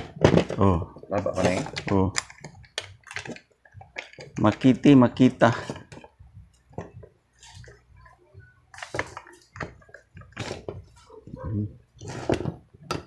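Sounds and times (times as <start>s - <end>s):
plastic housing clicks and knocks: 12.2s - 13.0s.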